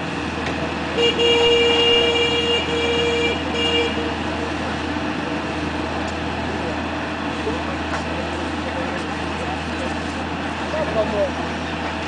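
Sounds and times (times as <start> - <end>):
diesel engine drone: 0.0 - 12.0
horn sounding: 0.9 - 4.5.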